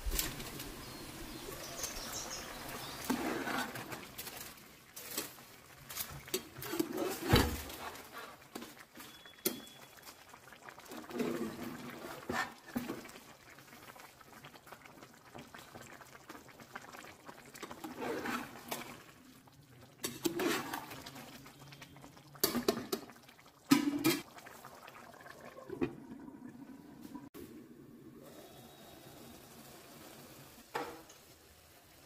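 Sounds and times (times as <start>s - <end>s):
stock bubbling in a pot: 0.0s - 27.4s
ladle scraping metal pot: 1.9s - 9.2s, 10.9s - 13.0s, 17.7s - 19.0s, 20.0s - 21.2s.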